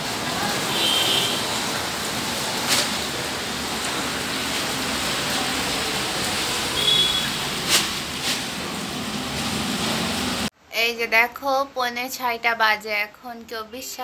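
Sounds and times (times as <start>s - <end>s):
rain: 0.0s - 10.5s
wind: 0.0s - 10.7s.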